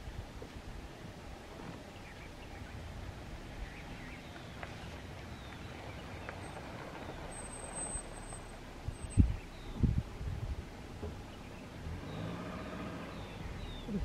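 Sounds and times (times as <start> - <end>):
low steady rumble: 0.0 - 14.0
faint bird chirps: 3.5 - 9.9, 11.2 - 14.0.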